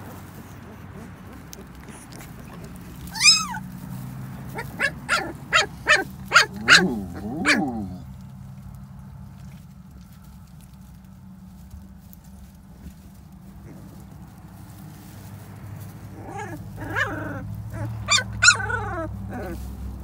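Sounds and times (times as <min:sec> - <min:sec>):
puppies whining: 0:00.0 - 0:08.2, 0:16.0 - 0:20.0
puppies yelping: 0:00.0 - 0:08.2, 0:15.8 - 0:20.0.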